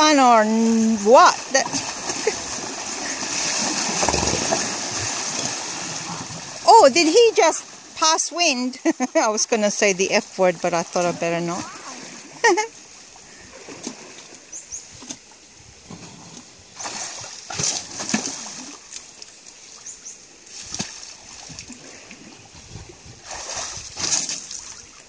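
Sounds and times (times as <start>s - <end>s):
elephant splashing water: 0.0s - 8.2s, 10.9s - 14.5s, 15.8s - 19.5s, 20.5s - 25.0s.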